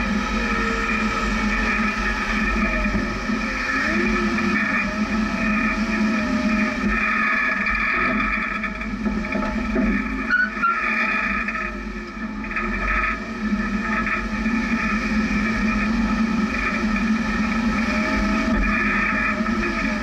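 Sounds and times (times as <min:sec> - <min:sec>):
vehicle engine running: 0:00.0 - 0:20.0.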